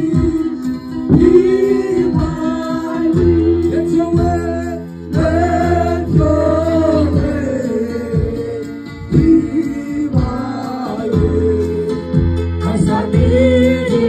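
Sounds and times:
keyboard: 0:00.0 - 0:14.0
man singing through microphone: 0:00.0 - 0:14.0
steady low beat: 0:01.1 - 0:04.4.

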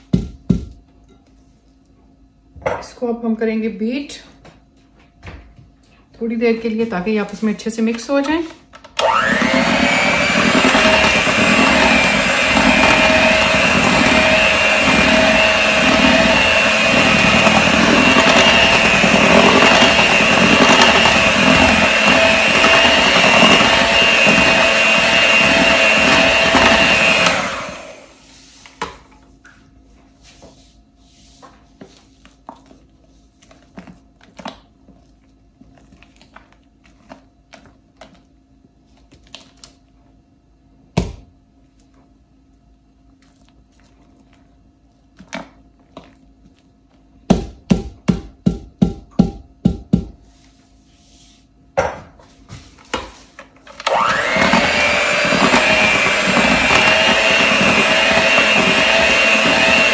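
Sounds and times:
electric mixer motor whine: 0:08.9 - 0:28.2, 0:53.6 - 0:59.9.

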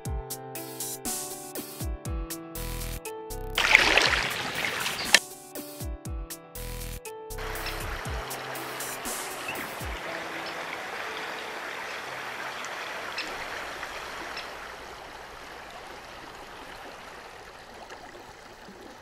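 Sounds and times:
flowing river water: 0:03.6 - 0:05.2, 0:07.4 - 0:19.0.

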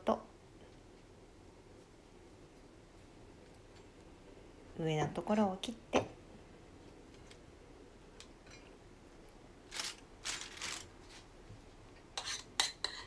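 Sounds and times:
knife scraping on cutting board: 0:12.2 - 0:13.0.

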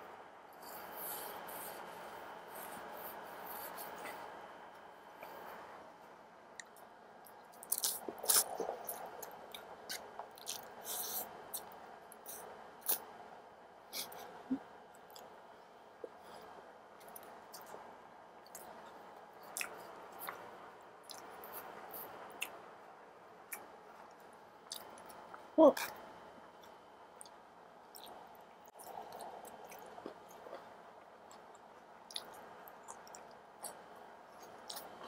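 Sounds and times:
slurping and chewing noodles: 0:07.5 - 0:13.1, 0:26.6 - 0:35.0.

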